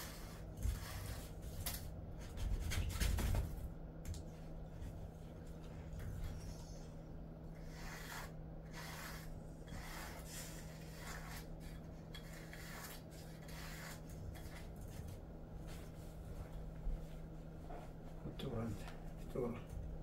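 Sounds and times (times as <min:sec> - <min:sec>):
faint steady hum: 0:00.0 - 0:20.0
brush stroking dog fur: 0:07.6 - 0:11.5.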